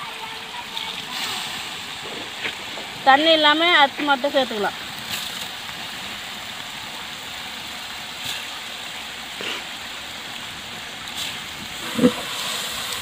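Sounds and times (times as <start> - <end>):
pot sizzling hiss: 0.0 - 5.0, 9.3 - 9.9, 11.1 - 13.0.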